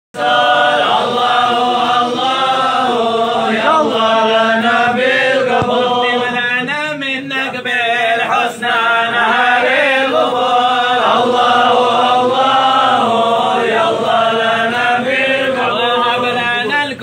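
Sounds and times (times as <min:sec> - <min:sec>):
men chanting together: 0:00.2 - 0:17.0.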